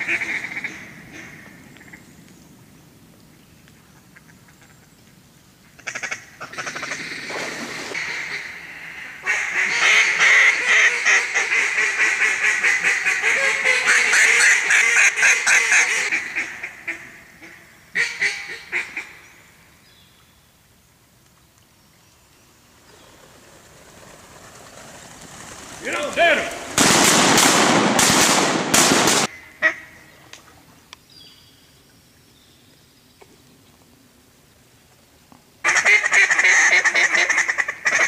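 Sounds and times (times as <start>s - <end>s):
duck call quacks: 0.0s - 1.4s, 9.2s - 19.1s, 29.3s - 29.9s, 35.6s - 38.0s.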